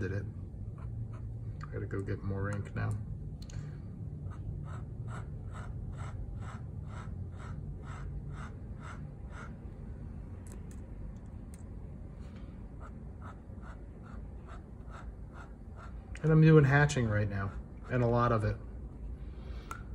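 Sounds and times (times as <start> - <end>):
pen nib scratching paper: 0.7 - 1.4, 4.2 - 9.6, 12.8 - 16.3.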